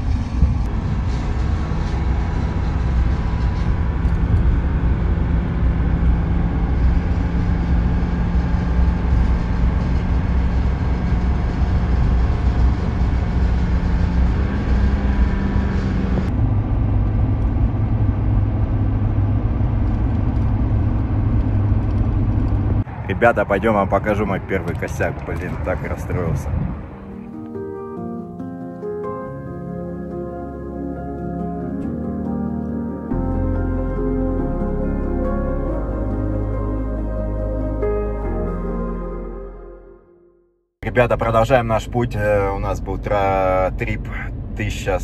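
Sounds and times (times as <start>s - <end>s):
road noise inside cab: 0.0s - 39.1s, 40.8s - 45.0s
heavy highway drone: 0.0s - 45.0s
truck engine hum: 0.0s - 45.0s.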